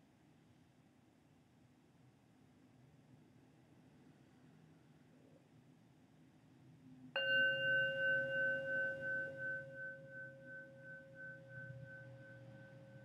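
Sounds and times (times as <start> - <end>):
meditation bell ringing: 7.2 - 13.0.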